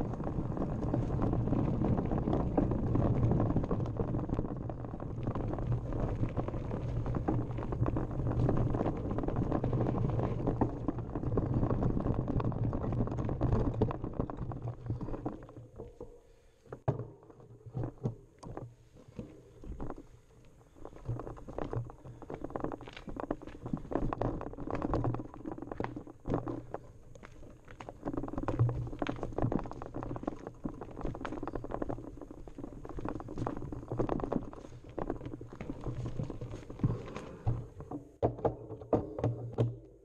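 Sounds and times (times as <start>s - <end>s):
tyres crunching over stones: 0.0s - 16.1s, 17.7s - 38.2s
bike clattering and knocking: 36.0s - 40.0s.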